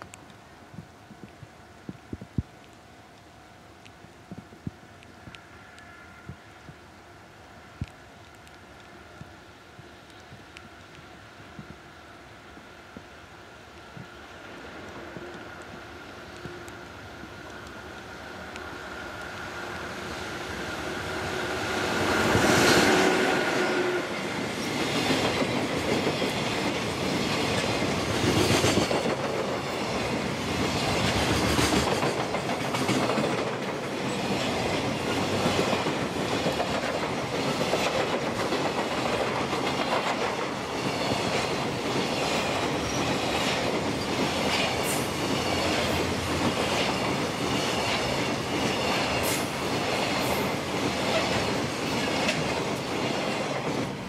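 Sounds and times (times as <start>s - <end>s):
electric locomotive whine: 0.0s - 54.0s
train wheels clacking on rails: 17.4s - 54.0s.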